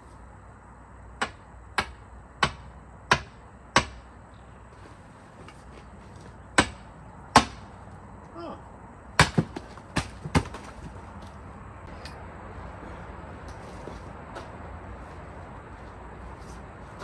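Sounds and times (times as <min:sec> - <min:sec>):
sledgehammer striking steel wedge: 0:01.2 - 0:04.1, 0:06.6 - 0:07.6
wood splitting knocks: 0:09.2 - 0:11.0.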